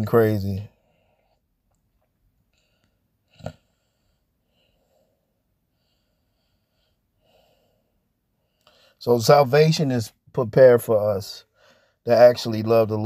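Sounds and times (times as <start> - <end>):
man breathing quietly: 2.5 - 9.0, 11.5 - 12.1.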